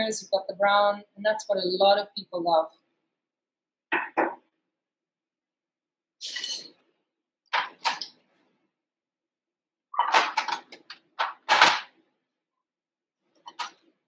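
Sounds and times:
kitchen items knocking on metal tray: 3.9s - 4.4s.

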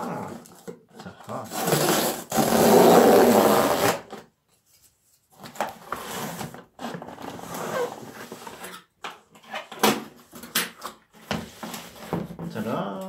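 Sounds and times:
cardboard box scraping on table: 1.3s - 4.2s, 5.5s - 8.8s, 11.1s - 12.4s.

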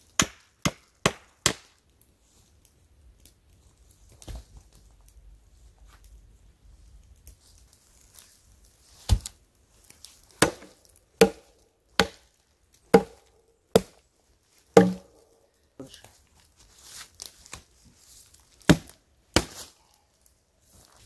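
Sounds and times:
chopping strikes on wood: 10.4s - 12.2s, 12.9s - 14.0s, 14.8s - 15.2s, 18.7s - 19.6s.

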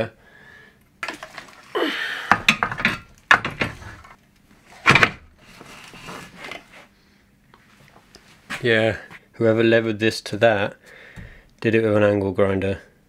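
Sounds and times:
saw turntable sliding scrape: 5.4s - 6.9s.

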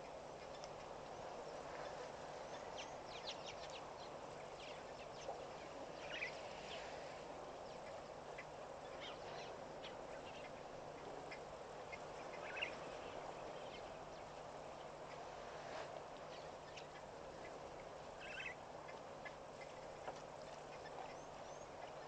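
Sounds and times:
chattering bird calls: 7.7s - 15.3s, 16.2s - 22.0s.

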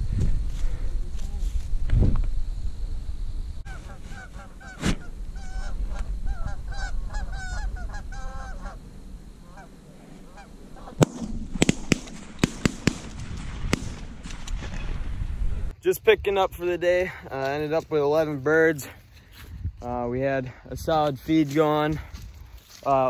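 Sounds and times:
geese honking: 3.6s - 11.0s.

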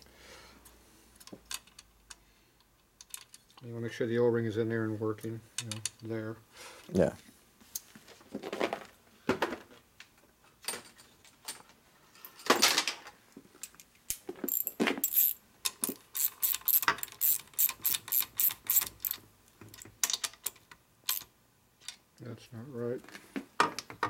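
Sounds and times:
metal tools clinking: 14.4s - 19.2s
hand ratchet clicking: 14.5s - 15.4s, 16.1s - 19.2s.

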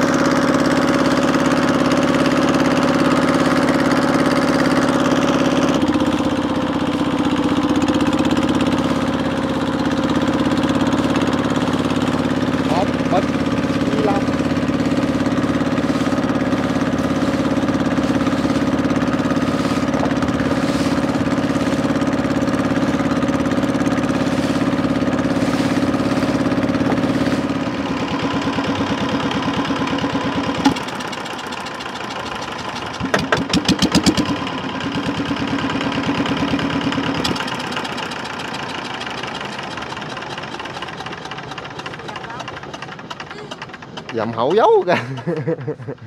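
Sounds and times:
boat engine running: 0.0s - 46.0s
clattering rattle: 37.2s - 45.4s.

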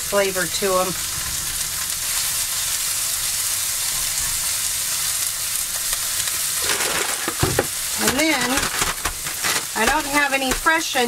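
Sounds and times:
vegetables sizzling in a frying pan: 0.0s - 11.0s.

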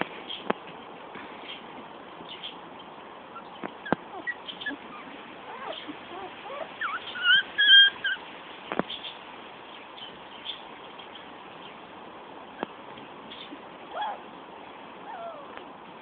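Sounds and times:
puppies squeaking: 2.8s - 8.2s, 13.9s - 14.2s, 15.1s - 15.6s
puppies whimpering: 3.3s - 8.2s, 13.9s - 14.2s, 15.0s - 15.6s.

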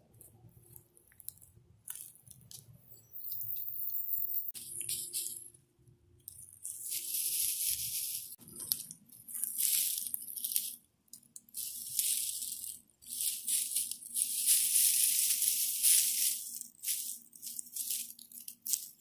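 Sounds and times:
dry grass rustling: 6.3s - 19.0s.

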